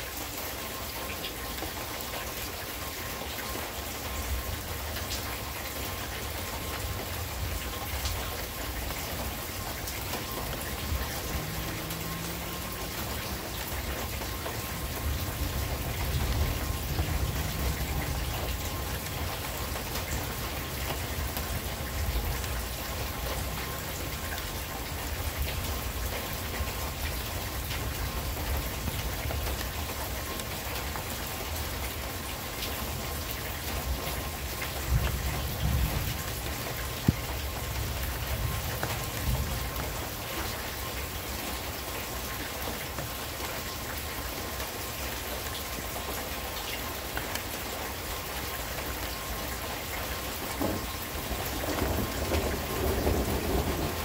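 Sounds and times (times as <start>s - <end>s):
steady rain: 0.0s - 54.0s
thunder rumbling: 6.9s - 24.1s, 50.5s - 54.0s.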